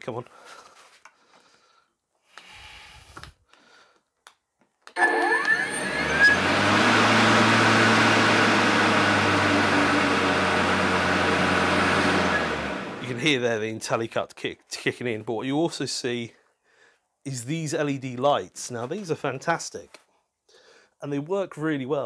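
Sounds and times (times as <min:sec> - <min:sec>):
lawn mower motor whining: 0:04.9 - 0:13.3.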